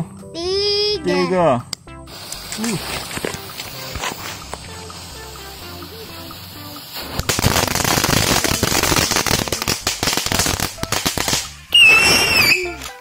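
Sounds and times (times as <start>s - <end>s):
firecrackers crackling: 2.1s - 13.0s
loud descending whistle: 11.7s - 12.8s.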